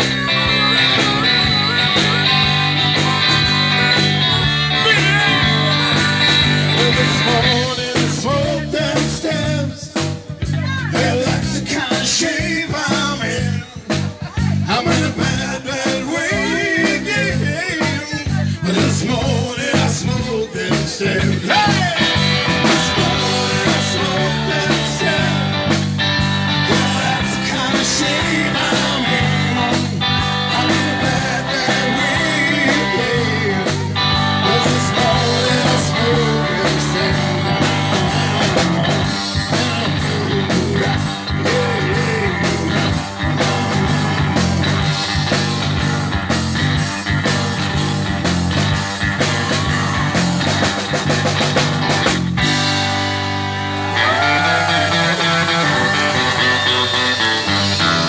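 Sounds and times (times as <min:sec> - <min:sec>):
people singing into microphones: 0:00.0 - 0:10.0, 0:10.9 - 0:13.8, 0:14.7 - 0:25.8, 0:26.6 - 0:44.6
bass guitar: 0:00.0 - 0:58.0
drums: 0:00.0 - 0:58.0
electric guitar: 0:00.0 - 0:58.0.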